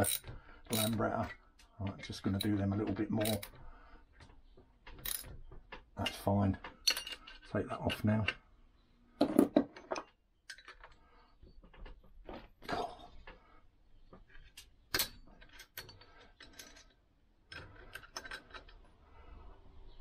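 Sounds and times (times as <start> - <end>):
spanners clicking on nuts: 0.0 - 1.4, 2.0 - 3.6.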